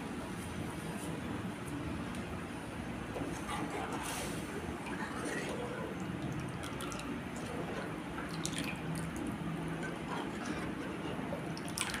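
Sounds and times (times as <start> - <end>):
thick liquid sloshing and dripping: 3.2 - 12.0.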